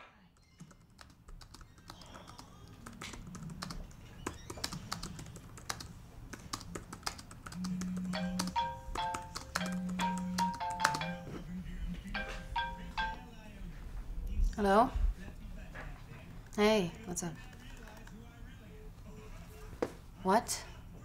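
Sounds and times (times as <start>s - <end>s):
laptop keyboard typing: 0.4s - 11.3s, 16.4s - 18.3s
phone ringtone melody: 7.5s - 11.5s, 12.1s - 13.3s
phone vibrating: 7.5s - 11.5s.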